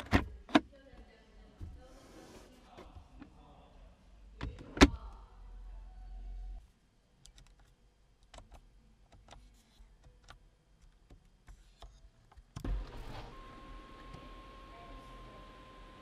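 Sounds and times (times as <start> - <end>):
electric motor whine: 12.7 - 16.0.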